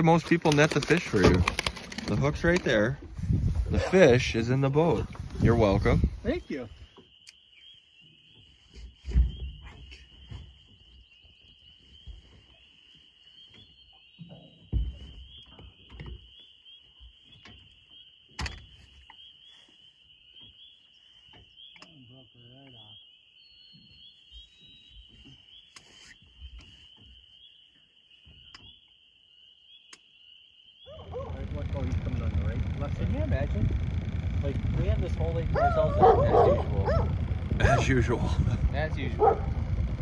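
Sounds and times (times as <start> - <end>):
frogs trilling: 3.7 - 8.4, 9.6 - 40.0
low thumps: 31.0 - 40.0.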